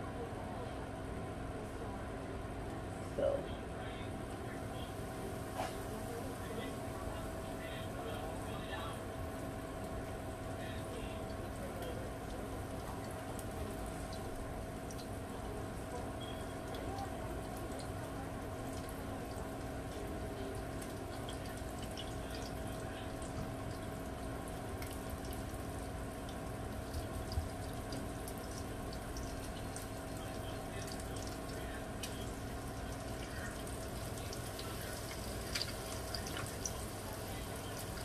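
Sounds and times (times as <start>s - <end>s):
fish sizzling in hot oil: 23.5s - 38.0s.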